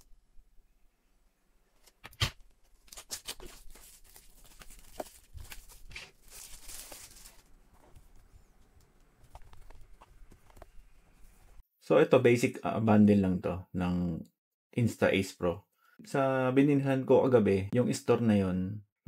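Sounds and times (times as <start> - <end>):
plastic shrink wrap crinkling and tearing: 2.7 - 8.0.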